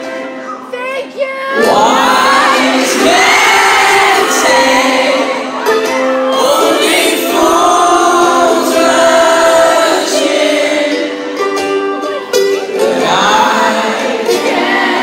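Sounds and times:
ukulele strumming: 0:00.0 - 0:00.7, 0:01.5 - 0:15.0
man singing into a microphone: 0:01.6 - 0:11.3.

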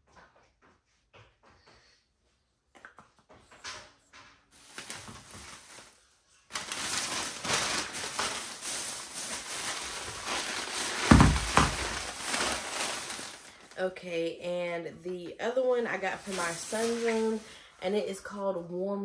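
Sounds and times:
rustling handling noise: 0:04.5 - 0:13.8, 0:15.9 - 0:17.7.

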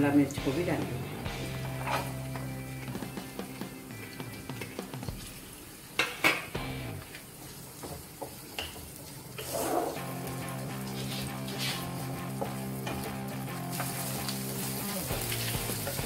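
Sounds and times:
background music: 0:00.0 - 0:07.1, 0:09.9 - 0:16.0
spatula stirring in a frying pan: 0:07.1 - 0:16.0.

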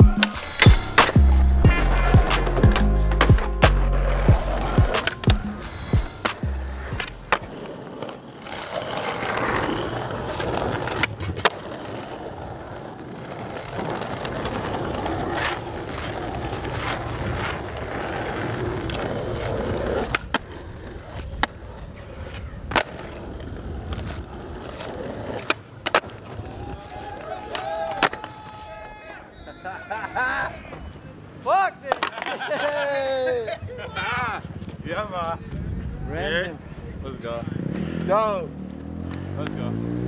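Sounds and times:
skateboard clacks: 0:00.0 - 0:28.9, 0:31.8 - 0:32.6
skateboard wheels rolling on stone: 0:00.1 - 0:29.0, 0:31.8 - 0:35.7.

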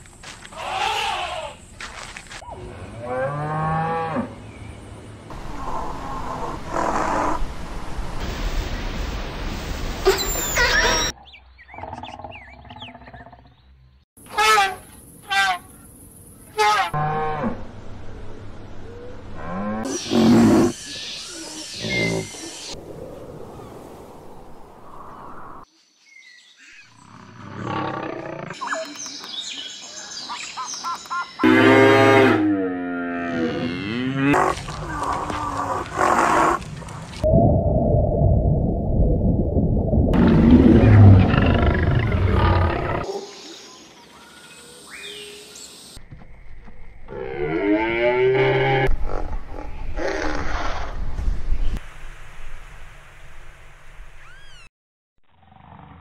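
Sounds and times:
birds chirping: 0:10.1 - 0:14.0, 0:19.9 - 0:22.8, 0:23.5 - 0:31.4
lion roaring: 0:40.2 - 0:43.1.

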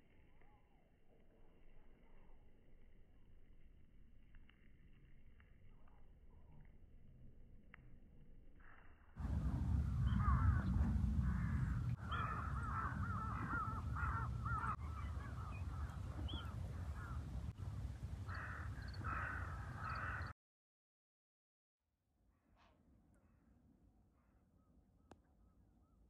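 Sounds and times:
wind rumble on microphone: 0:09.2 - 0:20.3
crows cawing: 0:10.1 - 0:17.3, 0:18.3 - 0:20.3.

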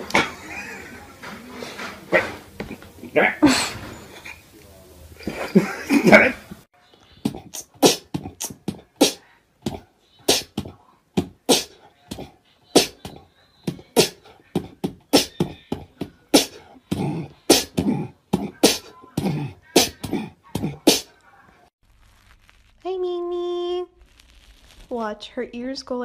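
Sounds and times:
beatbox mouth clicks and pops: 0:07.2 - 0:14.2.

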